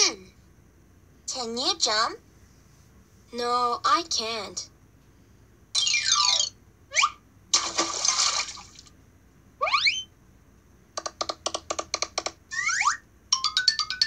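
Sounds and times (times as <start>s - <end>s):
water splash: 7.5s - 8.9s.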